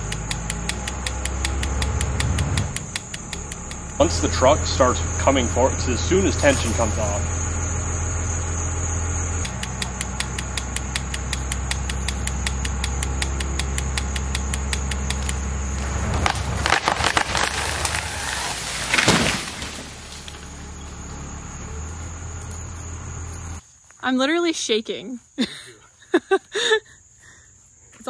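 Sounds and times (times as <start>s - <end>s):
truck engine running: 0.0s - 23.6s
insects droning: 0.0s - 28.0s
wood clicking as it breaks: 9.4s - 20.5s
tree trunk cracking and splintering: 13.8s - 20.8s
tree crashing to the ground: 15.1s - 21.5s.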